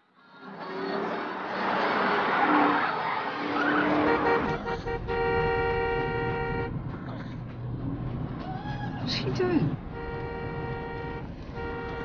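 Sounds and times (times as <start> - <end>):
car driving fast: 0.4 - 12.0
car horn: 3.6 - 7.0, 9.7 - 12.0.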